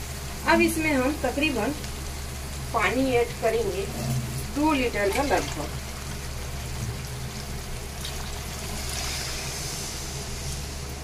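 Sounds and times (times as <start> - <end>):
low hum: 2.6 - 11.0
water pouring into curry: 4.0 - 9.9.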